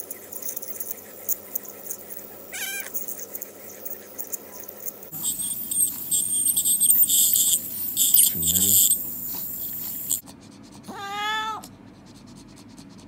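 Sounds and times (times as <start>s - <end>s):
cat meowing: 2.5s - 3.0s, 10.9s - 11.7s
dental scaler water spray hissing: 5.1s - 10.2s.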